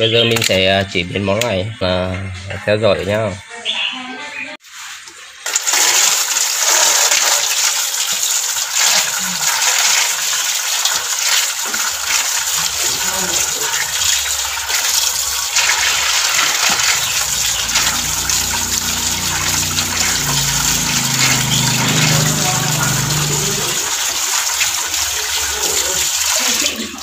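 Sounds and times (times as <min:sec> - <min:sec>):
water pouring into a metal basin: 0:04.6 - 0:27.0
low hum: 0:13.6 - 0:24.2.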